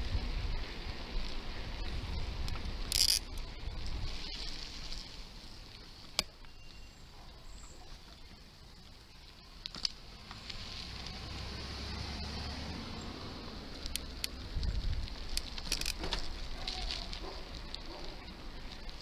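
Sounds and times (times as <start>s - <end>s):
wind rushing over microphone: 0.0s - 4.6s, 14.1s - 16.6s
bicycle road noise on asphalt: 0.0s - 19.0s
sharp clicks: 13.8s - 14.4s.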